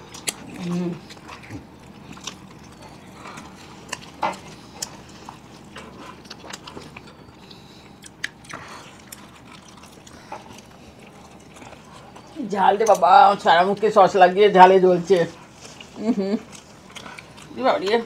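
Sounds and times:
people chewing food: 0.0s - 18.0s.

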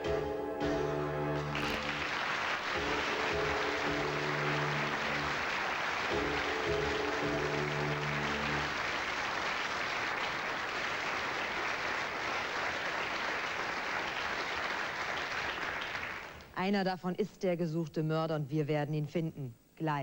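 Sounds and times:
audience applauding: 1.3s - 16.4s.

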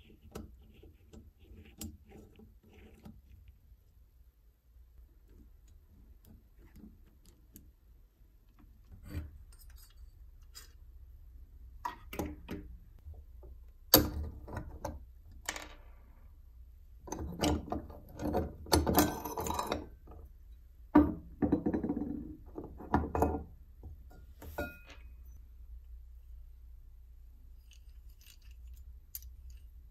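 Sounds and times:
metal parts clicking and scraping: 8.9s - 10.9s, 27.6s - 29.9s.

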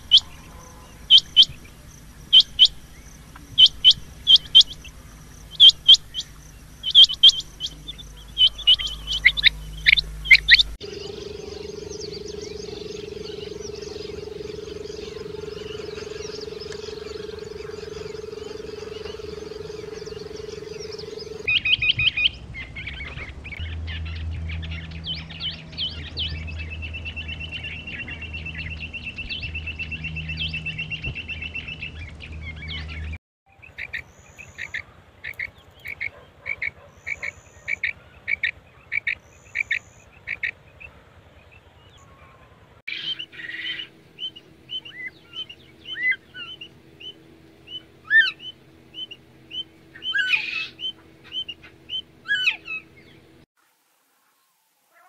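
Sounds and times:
quail trilling: 0.0s - 1.6s, 6.9s - 21.5s, 42.9s - 53.2s
soft quail chirps: 3.4s - 21.5s.

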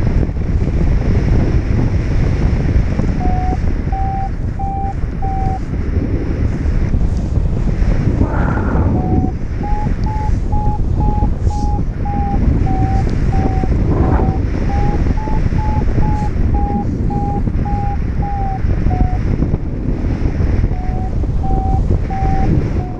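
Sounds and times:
wind rushing over microphone: 0.0s - 22.9s
variometer beeping: 3.1s - 5.7s, 8.3s - 19.5s, 20.5s - 22.9s.

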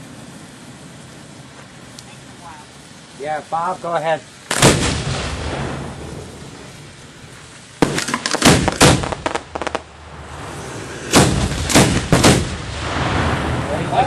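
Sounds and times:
fireworks crackles: 0.0s - 14.0s
fireworks bangs: 4.4s - 14.0s.

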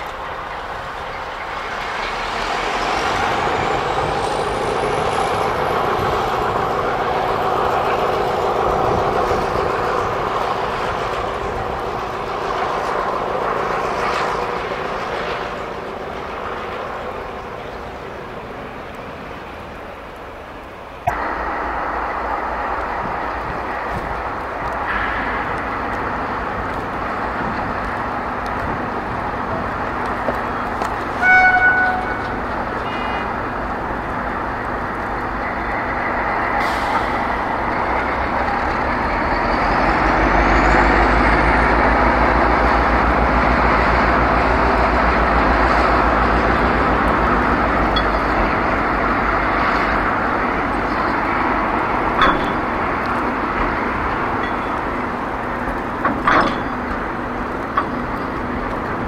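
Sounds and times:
diesel locomotive engine rumble: 0.0s - 59.0s
rolling train wheels: 0.0s - 59.0s
short horn toot: 31.2s - 32.3s
wagon clanks: 52.0s - 59.0s.

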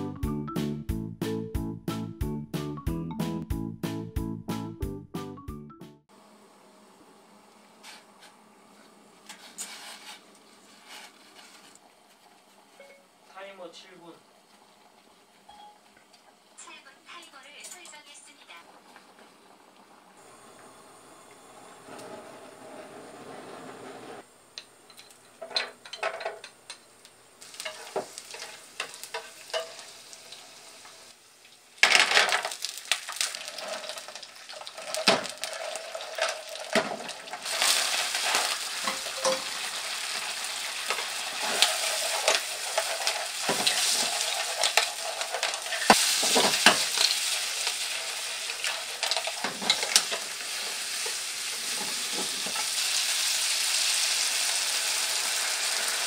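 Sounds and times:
food sizzling in a frying pan: 24.7s - 56.0s
chopsticks tapping and scraping pan: 27.5s - 29.9s, 34.9s - 39.6s, 40.9s - 47.2s, 48.5s - 52.7s.

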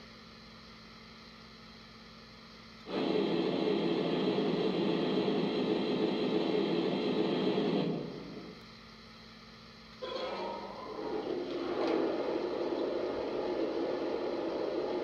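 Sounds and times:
model locomotive steam hiss: 2.9s - 8.6s.

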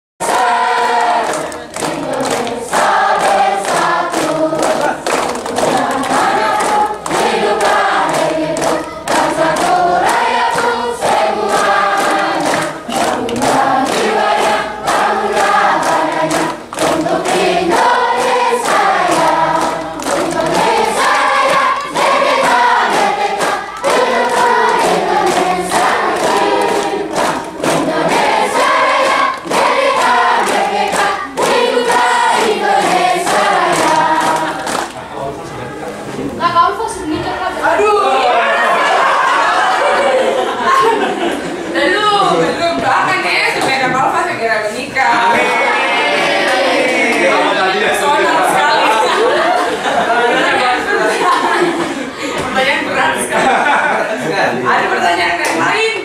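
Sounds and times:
children singing in unison: 0.2s - 36.0s, 45.2s - 52.3s.

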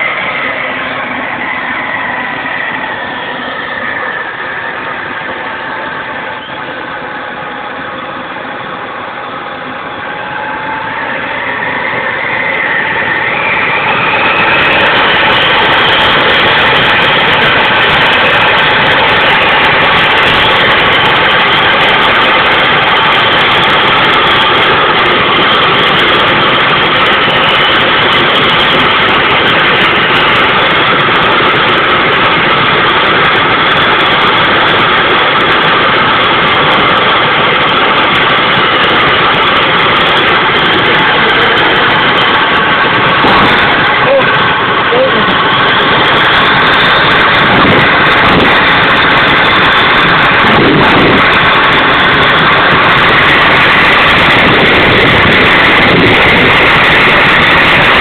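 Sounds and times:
jet engine whine: 0.0s - 58.0s.

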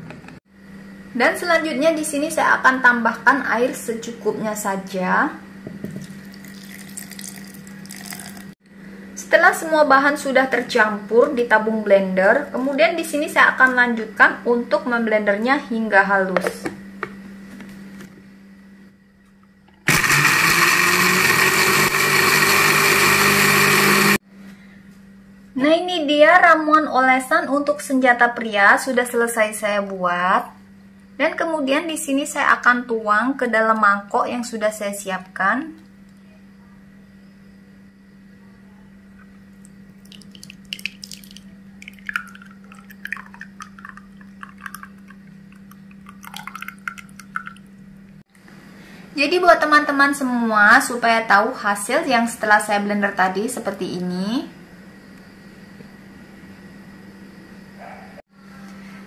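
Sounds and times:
liquid splashing and plopping: 6.0s - 8.5s, 40.0s - 47.8s
thick liquid pouring into bowl: 6.0s - 8.6s, 40.0s - 47.7s
blender running: 19.9s - 24.2s.

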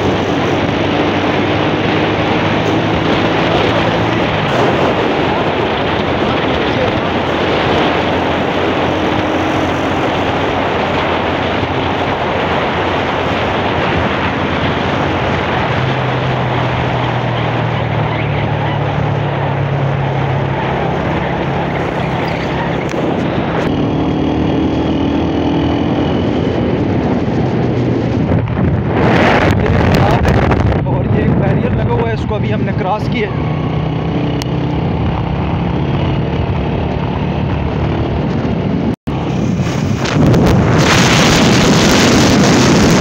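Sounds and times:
low engine hum: 0.0s - 43.0s
road noise from vehicle: 0.0s - 43.0s
wind rushing on microphone: 0.0s - 43.0s.

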